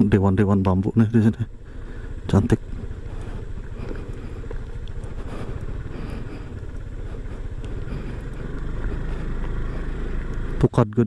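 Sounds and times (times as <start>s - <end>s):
scooter engine running: 0.0s - 11.0s
tyres on loose gravel: 0.0s - 11.0s.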